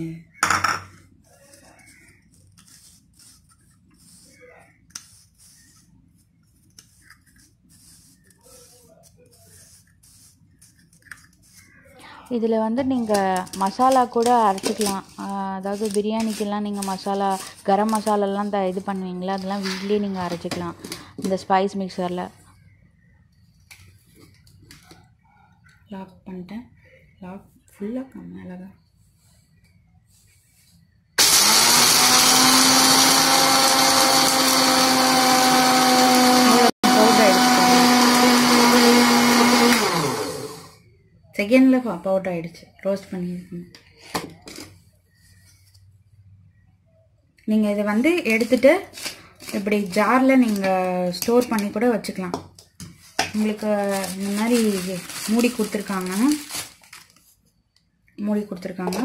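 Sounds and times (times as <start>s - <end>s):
blade grinding spices: 12.9s - 20.4s, 31.2s - 40.7s
plastic jar handling: 12.9s - 21.4s, 48.2s - 57.4s
blender motor running: 31.2s - 40.8s.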